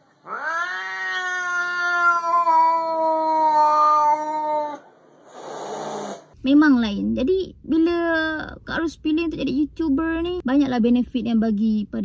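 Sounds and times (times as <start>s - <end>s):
cat yowling: 0.2s - 4.9s
cat hissing: 0.2s - 6.4s.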